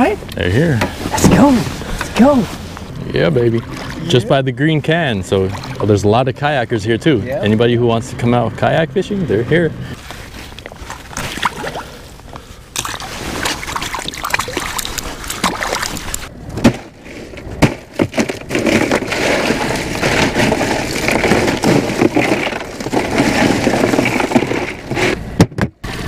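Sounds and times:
water sloshing and splashing: 0:00.9 - 0:06.2, 0:10.0 - 0:25.2
ice cubes rattling in a cooler: 0:17.2 - 0:25.1.

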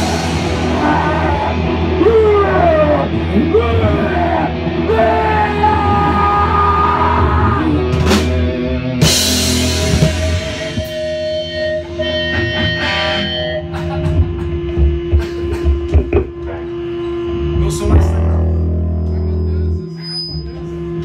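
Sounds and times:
drum kit: 0:00.0 - 0:19.5
distorted electric guitar: 0:00.0 - 0:21.0.

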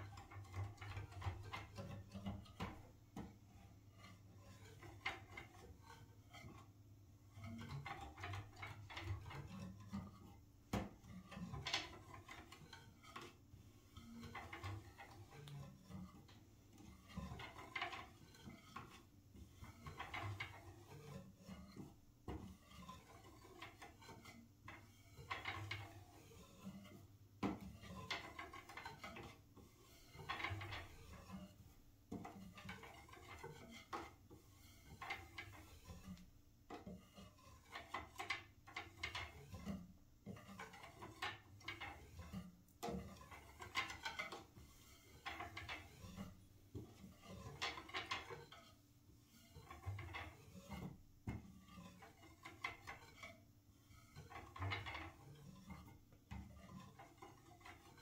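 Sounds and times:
fingertips tapping on wood: 0:07.5 - 0:13.4, 0:26.7 - 0:29.4, 0:30.1 - 0:48.9.

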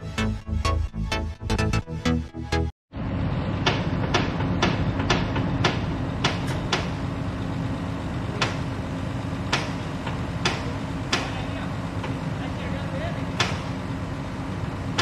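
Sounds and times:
engine hum: 0:02.5 - 0:15.0
sharp knocks and clanks: 0:03.6 - 0:07.1, 0:08.3 - 0:08.8, 0:09.5 - 0:12.3, 0:13.3 - 0:13.8.

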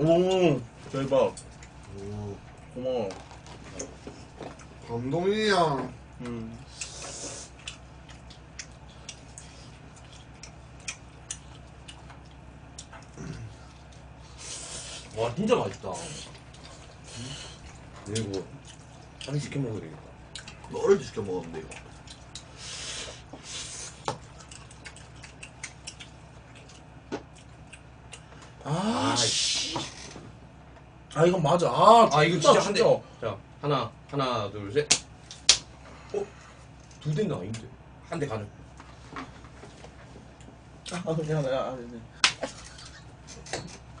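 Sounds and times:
steady low hum: 0:00.0 - 0:44.0
chewing smacks: 0:06.2 - 0:14.2, 0:15.0 - 0:19.5, 0:20.1 - 0:20.7, 0:21.4 - 0:22.6, 0:23.9 - 0:28.4.

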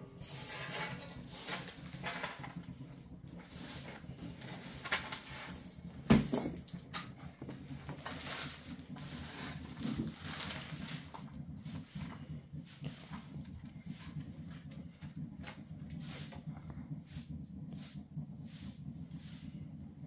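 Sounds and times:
broom sweeping concrete floor: 0:00.0 - 0:05.9, 0:07.9 - 0:19.8
low steady hum: 0:00.0 - 0:20.0.

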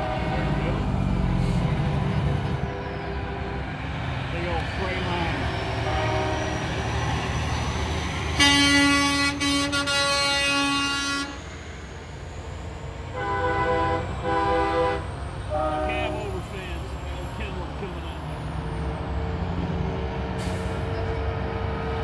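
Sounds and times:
truck air horn blast: 0:00.0 - 0:00.8, 0:05.8 - 0:06.8, 0:08.4 - 0:11.5, 0:13.1 - 0:16.3
diesel truck engines rumbling: 0:00.0 - 0:22.0
short horn toots: 0:08.4 - 0:11.4.

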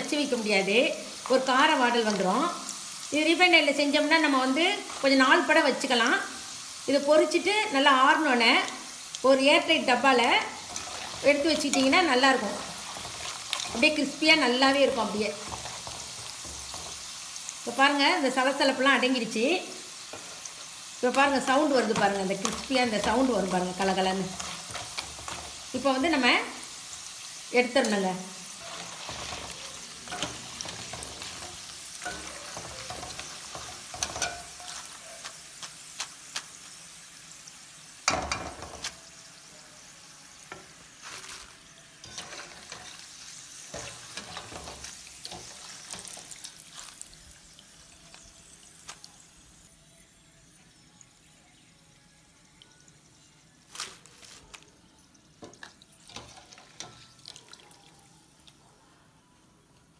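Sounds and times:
chips sizzling in hot oil: 0:00.0 - 0:58.6
wire skimmer clinking on pan: 0:28.6 - 0:34.9, 0:42.0 - 0:43.1.

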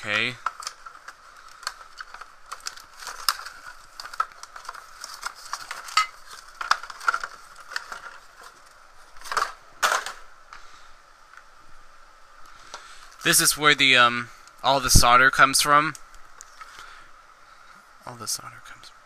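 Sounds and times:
cardboard packaging rustling: 0:00.0 - 0:10.3.

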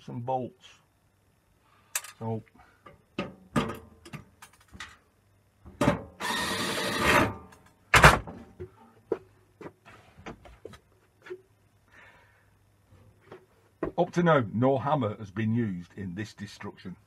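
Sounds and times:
cordless drill running: 0:06.2 - 0:07.3.

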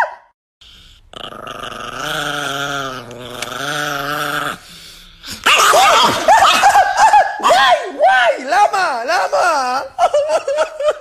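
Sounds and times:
small dog growling: 0:00.8 - 0:05.5.

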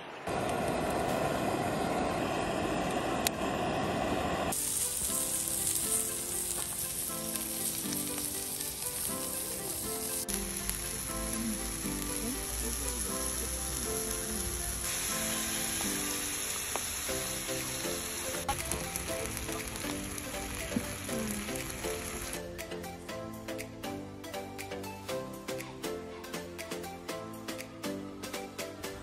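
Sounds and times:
beef sizzling on a grill: 0:03.4 - 0:22.5
soft background music: 0:04.5 - 0:29.0.

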